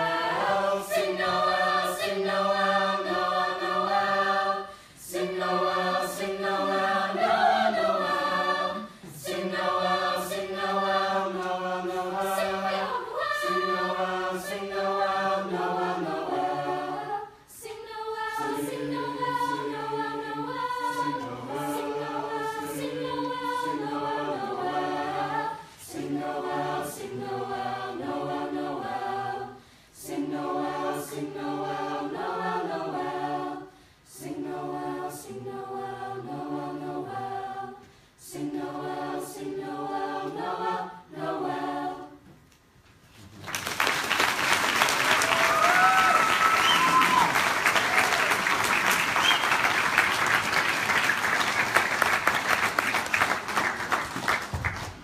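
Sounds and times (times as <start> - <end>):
choir singing: 0.0 - 42.4, 44.7 - 51.9
audience applause: 43.4 - 55.0.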